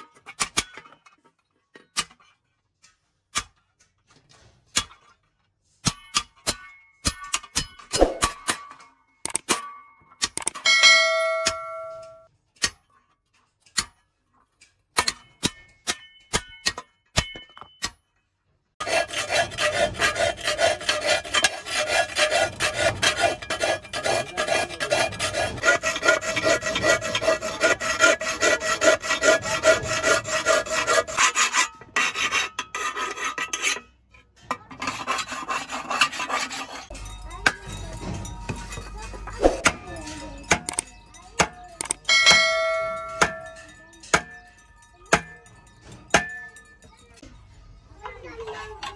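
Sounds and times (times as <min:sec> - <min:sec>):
tool rasping across metal blade: 0:05.8 - 0:08.5, 0:10.2 - 0:14.0, 0:18.8 - 0:44.4, 0:45.1 - 0:46.8
sheet metal ringing: 0:10.6 - 0:12.3, 0:36.9 - 0:47.2.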